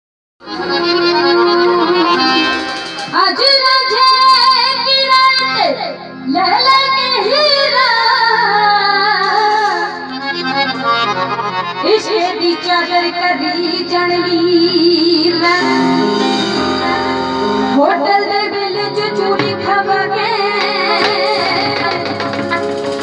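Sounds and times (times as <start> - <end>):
instrumental backing: 0.4 - 23.0
girl singing into a microphone: 3.1 - 10.0, 11.8 - 15.8, 17.8 - 22.1.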